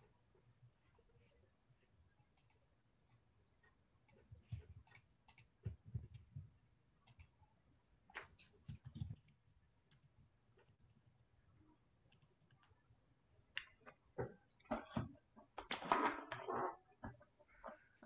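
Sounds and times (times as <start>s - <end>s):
keyboard and mouse clicking: 4.0s - 6.2s, 7.0s - 7.4s, 8.1s - 10.1s.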